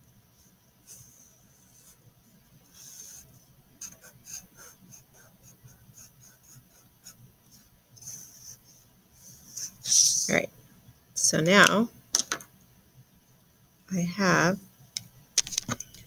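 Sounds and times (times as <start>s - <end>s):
marker pen scratching on paper: 0.8s - 2.0s, 2.7s - 9.8s.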